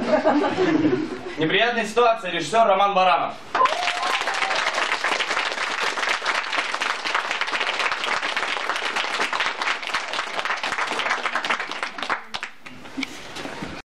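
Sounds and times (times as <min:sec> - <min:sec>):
audience applauding: 0:03.5 - 0:12.9.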